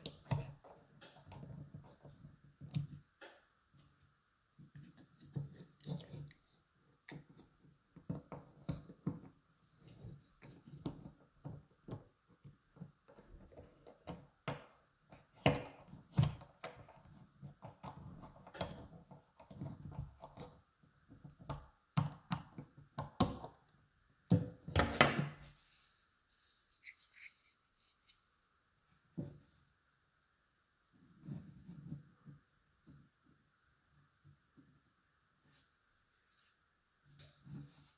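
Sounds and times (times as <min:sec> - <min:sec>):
screwdriver clicks and scrapes: 0:26.8 - 0:28.2.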